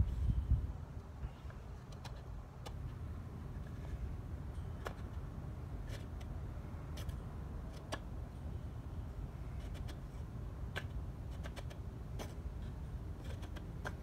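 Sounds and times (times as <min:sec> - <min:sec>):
steady low rumble: 0:00.0 - 0:13.3
marking gauge scratching wood: 0:09.6 - 0:14.0.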